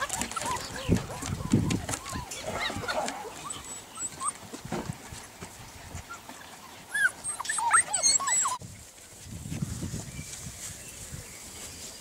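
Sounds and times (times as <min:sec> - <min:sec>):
puppies whining: 0:00.0 - 0:04.6, 0:06.0 - 0:08.6.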